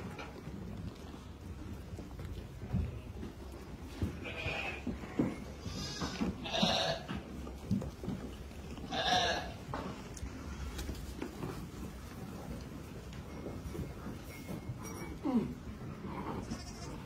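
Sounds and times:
sheep bleating: 0:04.2 - 0:07.2, 0:08.8 - 0:09.6, 0:16.1 - 0:17.0.

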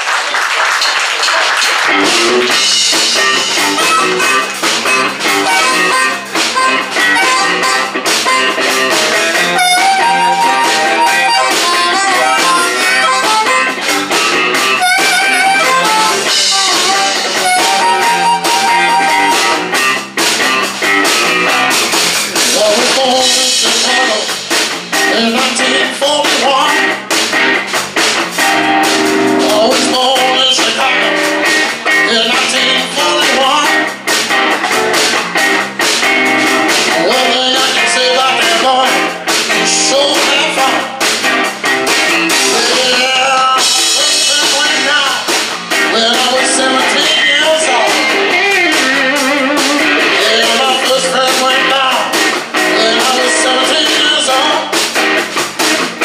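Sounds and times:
electric blues band playing: 0:00.1 - 0:56.0
amplified harmonica held notes: 0:03.6 - 0:19.7.

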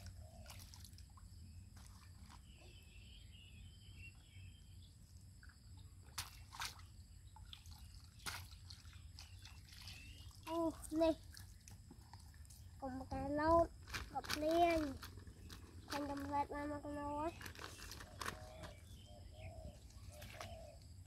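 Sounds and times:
water splashes: 0:00.0 - 0:02.8, 0:06.0 - 0:13.3
muddy water sloshing: 0:00.0 - 0:02.9, 0:05.4 - 0:21.0.

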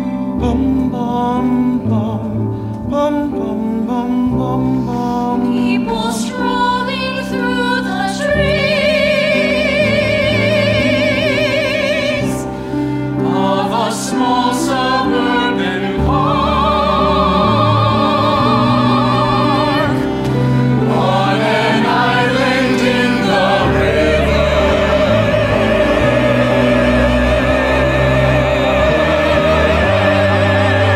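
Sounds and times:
orchestral accompaniment: 0:00.0 - 0:30.9
choir singing held notes: 0:07.8 - 0:30.9.

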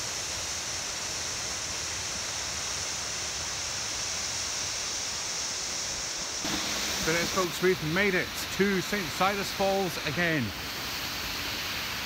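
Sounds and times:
waterfall rushing: 0:06.4 - 0:12.0.

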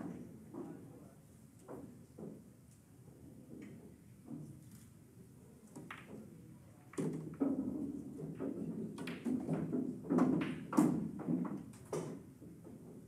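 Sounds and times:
cue striking ball: 0:07.0 - 0:12.2
billiard balls clicking: 0:07.0 - 0:12.7.

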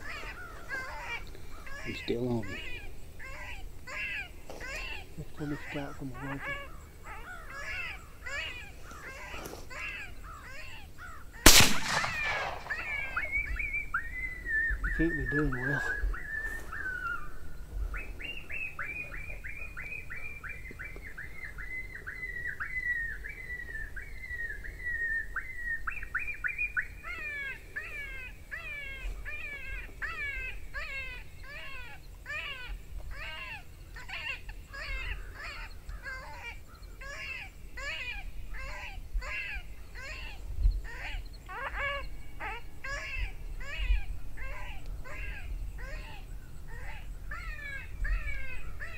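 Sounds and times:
electronic coyote yelps: 0:12.0 - 0:13.5.

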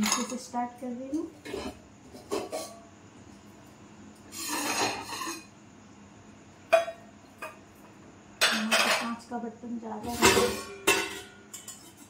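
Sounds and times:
crockery clinking: 0:00.0 - 0:00.5, 0:08.4 - 0:09.2, 0:10.1 - 0:12.0
dish scraping across shelf: 0:04.3 - 0:05.5.

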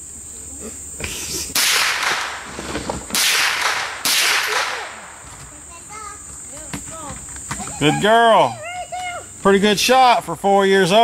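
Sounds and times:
gunshots with echo: 0:01.6 - 0:02.5, 0:03.1 - 0:05.2.

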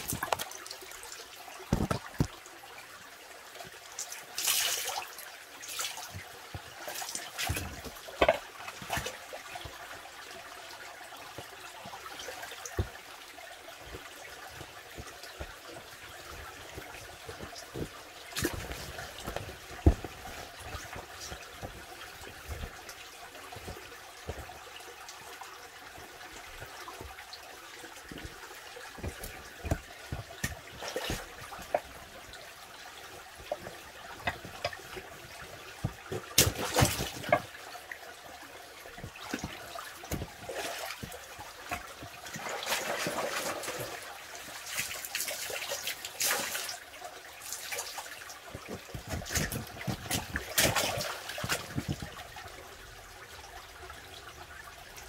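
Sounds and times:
water trickling and splashing: 0:00.0 - 0:55.0
small knocks: 0:01.7 - 0:02.4.

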